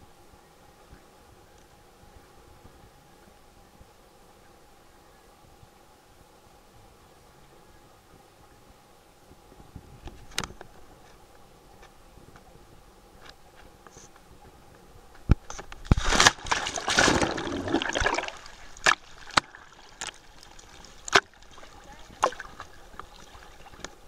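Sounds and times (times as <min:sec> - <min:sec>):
small waves slapping camera: 0:10.0 - 0:24.0
water splashing and sloshing: 0:15.3 - 0:24.0.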